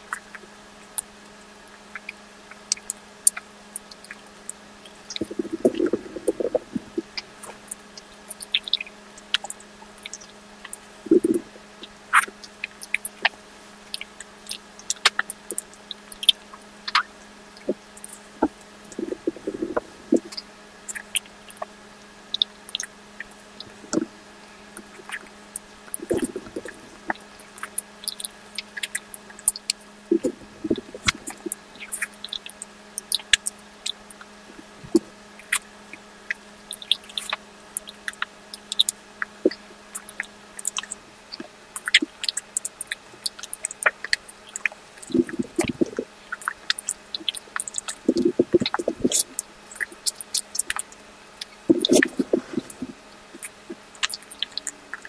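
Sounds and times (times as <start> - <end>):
chewing: 1.7 - 21.7, 22.4 - 35.7, 36.3 - 55.0
wet mouth clicks and smacks: 5.1 - 11.4, 12.1 - 21.7, 24.8 - 34.3, 36.7 - 55.0.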